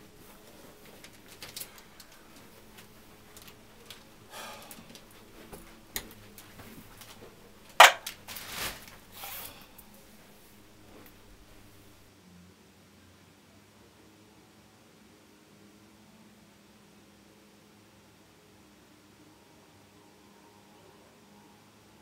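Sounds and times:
rustling: 0.0s - 12.0s
sharp knock: 7.8s - 8.0s.

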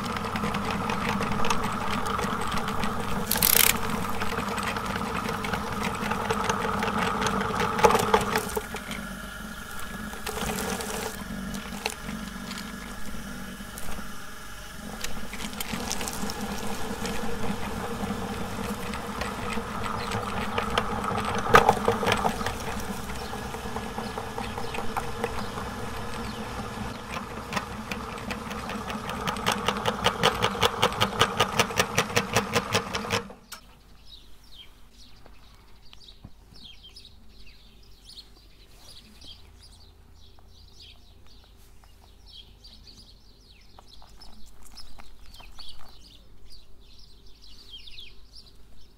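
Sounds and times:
meat grinder whirring: 0.0s - 33.5s
fast even clicks: 0.0s - 33.6s.

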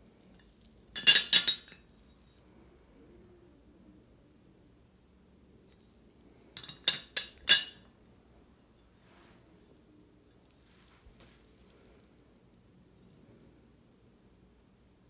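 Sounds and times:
teapot lid clinking: 6.6s - 7.8s
handling rustling: 6.6s - 12.2s.

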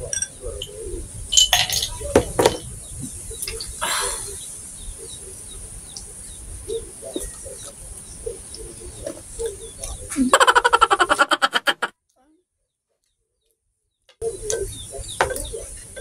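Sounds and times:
fork clinking glassware: 0.0s - 0.7s, 1.4s - 2.6s.

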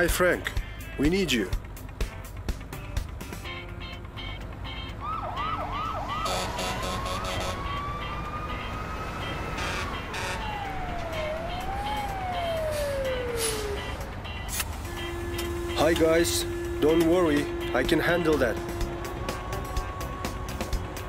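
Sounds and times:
fire truck siren: 4.9s - 21.0s.

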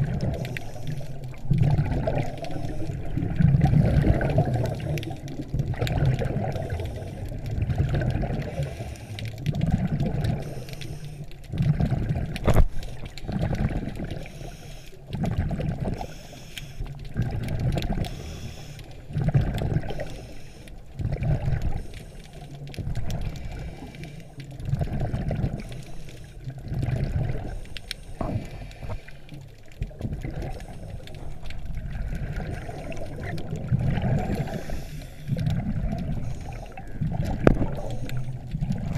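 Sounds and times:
underwater exhaust bubbles: 0.0s - 38.9s
scuba regulator breathing: 0.1s - 3.4s, 6.4s - 7.6s, 8.3s - 9.6s, 10.2s - 11.5s, 14.1s - 15.2s, 15.9s - 17.1s, 17.9s - 29.5s, 30.3s - 31.6s, 33.9s - 38.9s.

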